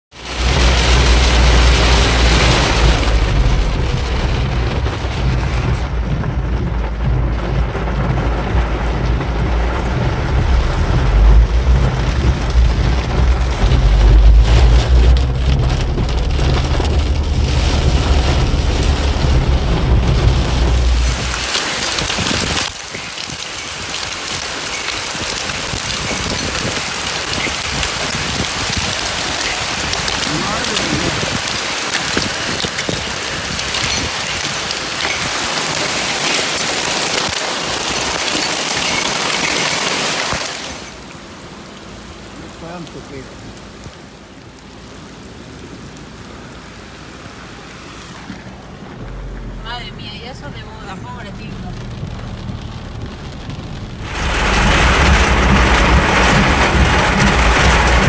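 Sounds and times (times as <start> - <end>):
heavy downpour on street: 0.0 - 58.0
heavy rain on car: 0.0 - 58.0
car rumble on road: 0.1 - 58.0.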